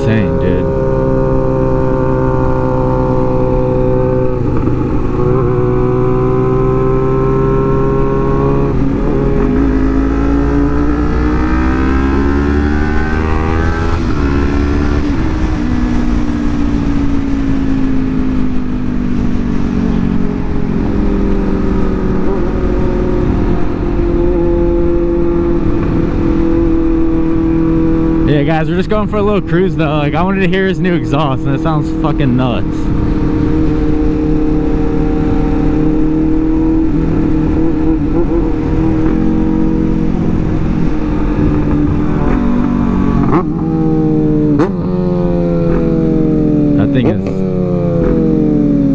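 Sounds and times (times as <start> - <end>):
motorcycle engine revving: 0.0 - 48.9.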